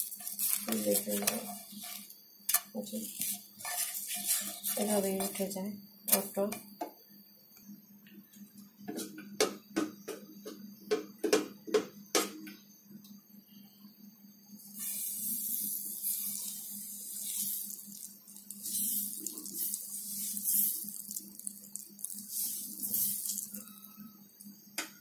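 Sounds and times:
batter sizzling on frying pan: 0.0 - 6.6, 14.6 - 24.8
low steady hum: 12.4 - 25.0.

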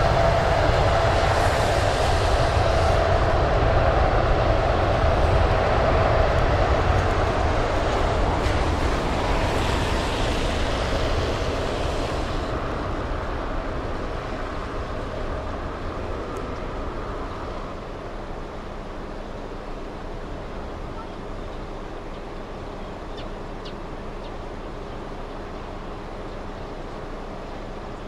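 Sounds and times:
jet engine rumble: 0.0 - 28.0
spray hiss from wet runway: 8.3 - 12.8.

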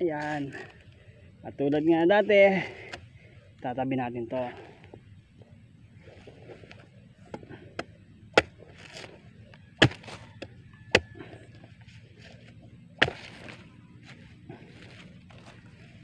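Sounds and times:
machete chopping coconut husk: 7.3 - 9.2, 9.8 - 11.3, 13.0 - 13.7.

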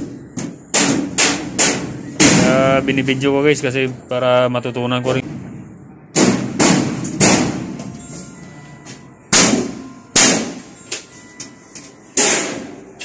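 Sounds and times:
loud metallic bangs: 0.0 - 3.4, 5.2 - 7.9, 9.2 - 10.8, 12.1 - 13.0.

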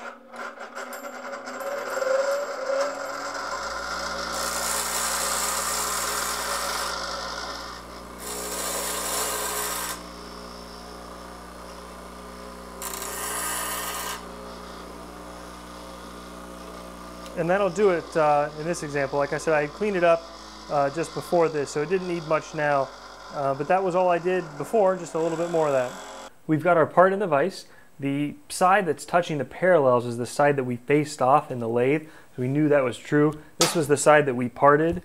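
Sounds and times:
bench grinder motor hum: 0.0 - 26.3
blade grinding on wheel: 0.0 - 26.3.

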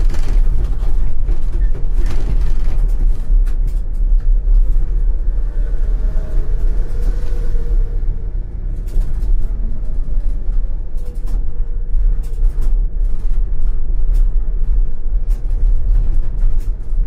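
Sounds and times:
tram rumbling: 0.0 - 17.0
wheels clicking on rails: 0.0 - 17.0.

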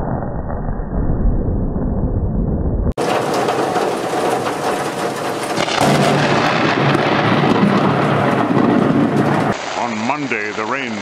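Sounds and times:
thunder rumble: 0.0 - 9.9
heavy rain hissing: 3.0 - 11.0.

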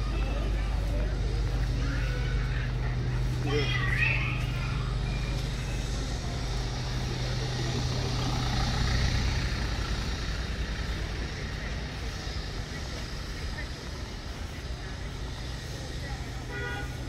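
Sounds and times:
car engine humming driving past: 0.0 - 17.0.

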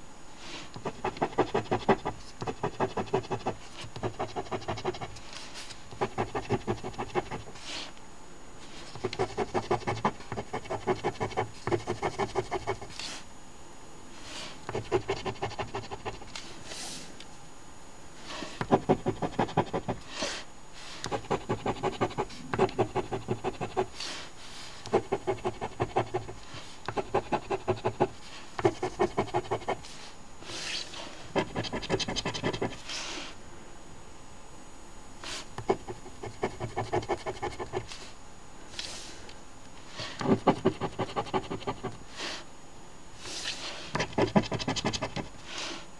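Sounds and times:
coin scratching lottery ticket: 0.9 - 5.2, 27.0 - 29.9, 30.7 - 32.8, 44.0 - 45.3.

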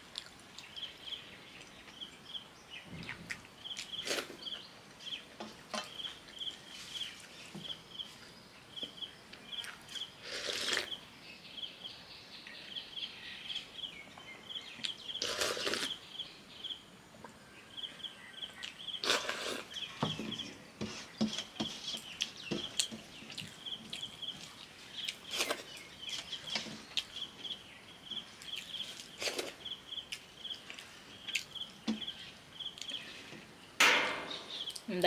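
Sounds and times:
slurping: 15.2 - 16.0, 19.0 - 19.8
high chirp: 33.8 - 34.9.

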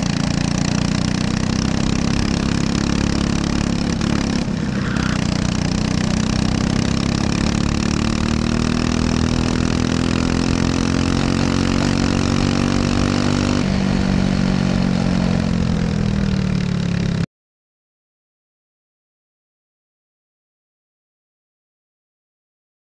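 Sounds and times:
kart engine revving: 0.0 - 17.2.

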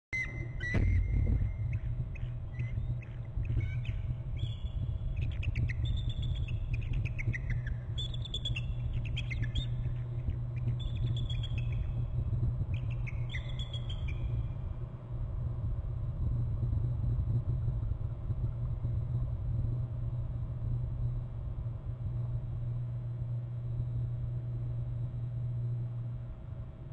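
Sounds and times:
eagles trilling: 0.2 - 12.0
low rumble: 0.2 - 26.9.

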